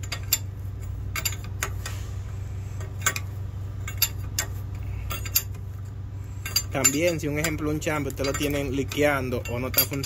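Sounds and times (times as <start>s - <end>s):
wrench clinking on metal nut: 0.0s - 1.8s, 2.8s - 5.6s, 6.4s - 10.0s
low hum: 0.0s - 10.0s.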